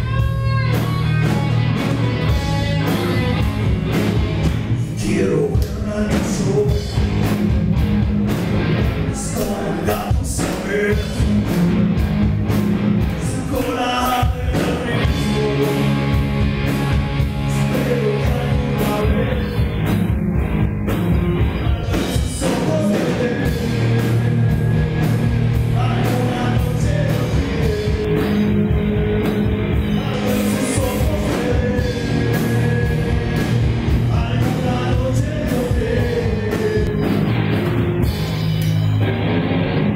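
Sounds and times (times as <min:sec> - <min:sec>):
live rock band playing: 0:00.0 - 0:39.9
man singing into a microphone: 0:04.8 - 0:07.0, 0:09.1 - 0:11.3, 0:13.2 - 0:16.1, 0:17.5 - 0:19.7, 0:21.5 - 0:25.1, 0:25.7 - 0:37.1.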